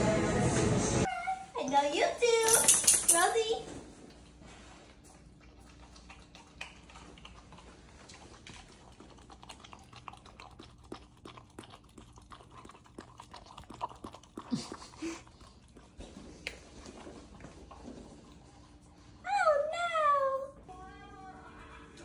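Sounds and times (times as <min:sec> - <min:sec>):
dog licking paper cup: 0:05.2 - 0:19.1.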